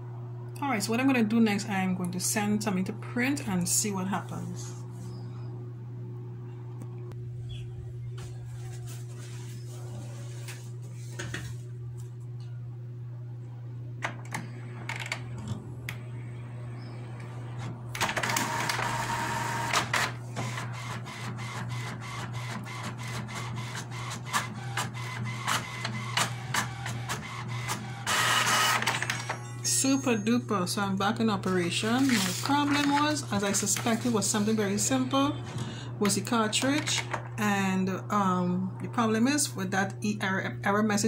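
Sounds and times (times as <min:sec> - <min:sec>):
printer paper feed whirr: 0:14.1 - 0:29.4, 0:31.7 - 0:37.2
inkjet printer printing: 0:17.0 - 0:29.4, 0:31.4 - 0:35.6.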